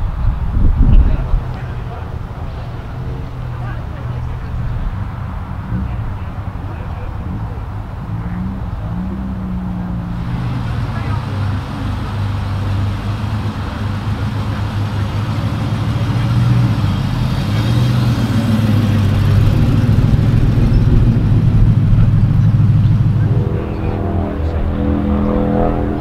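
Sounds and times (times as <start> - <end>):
car engine passing by: 0.0 - 26.0.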